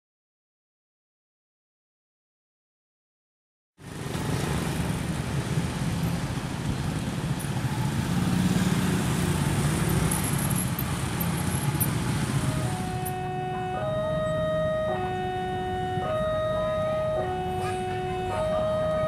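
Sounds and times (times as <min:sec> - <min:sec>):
car passing: 0:03.8 - 0:19.0
motorcycles passing: 0:03.8 - 0:19.0.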